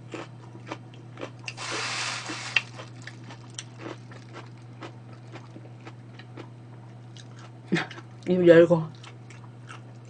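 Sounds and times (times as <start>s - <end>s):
person chewing food: 0.0s - 8.2s, 8.9s - 10.0s
steady low hum: 0.0s - 10.0s
rustling hiss: 1.6s - 2.8s.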